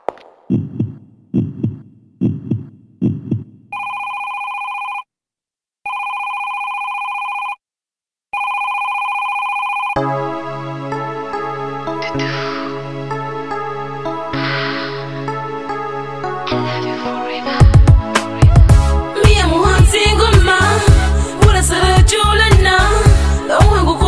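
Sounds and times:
heartbeat thumps: 0.0s - 3.8s, 17.6s - 20.5s
electronic telephone ringing: 3.7s - 5.1s, 5.9s - 7.6s, 8.4s - 10.0s
song music: 10.0s - 24.0s.

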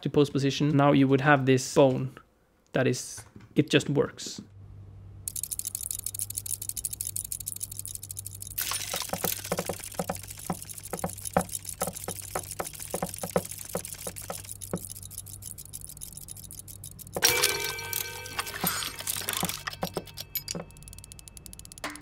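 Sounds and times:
fast mechanical ticking: 5.3s - 22.0s
small metallic clicks: 5.3s - 22.0s.

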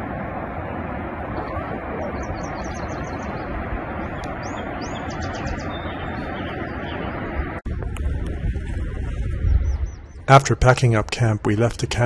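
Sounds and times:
rushing background noise: 0.0s - 11.3s
songbird chirping: 2.0s - 7.4s.

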